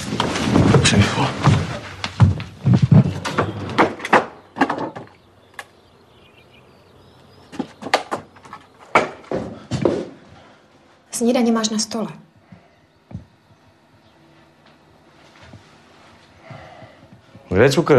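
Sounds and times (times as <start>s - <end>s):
doors and cupboards opening and shutting: 2.7s - 5.2s.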